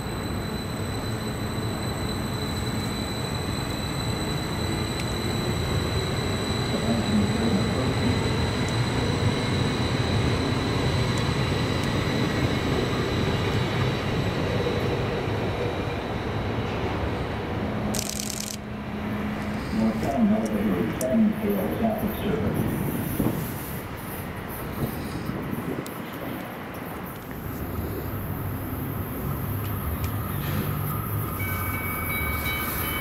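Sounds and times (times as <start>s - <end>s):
train wheels rumbling on rails: 0.0s - 33.0s
thin high tone: 30.9s - 33.0s.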